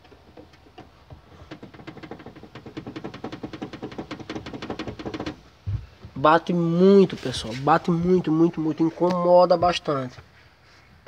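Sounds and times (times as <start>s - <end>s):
plastic strap knocking on car body: 0.1s - 6.2s.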